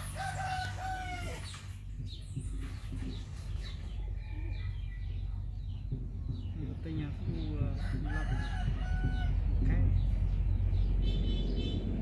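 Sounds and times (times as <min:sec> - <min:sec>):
rooster crowing: 0:00.0 - 0:01.5
steady low hum: 0:00.0 - 0:12.0.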